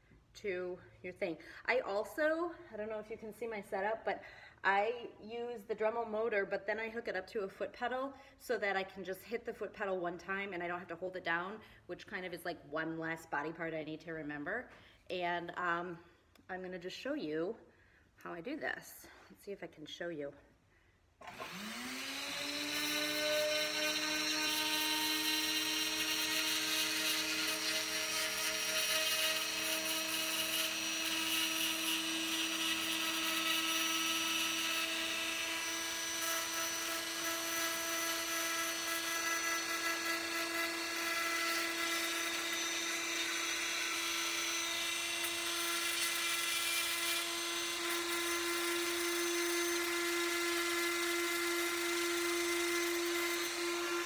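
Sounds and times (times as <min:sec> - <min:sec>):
rotary tool whining: 0:21.2 - 0:54.0.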